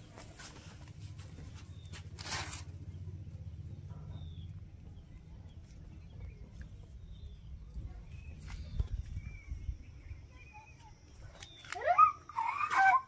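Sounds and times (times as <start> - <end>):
steady low rumble: 0.0 - 11.4
faint bird chirps: 3.7 - 13.0.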